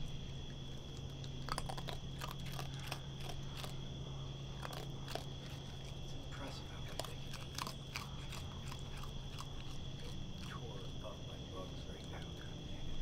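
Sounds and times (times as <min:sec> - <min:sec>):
low hum: 0:00.0 - 0:13.0
raccoon crunching food: 0:00.0 - 0:13.0.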